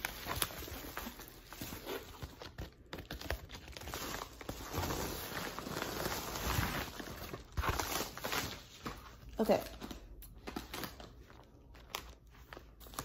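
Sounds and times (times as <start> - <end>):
paper mailer crinkling and tearing: 0.0 - 8.9.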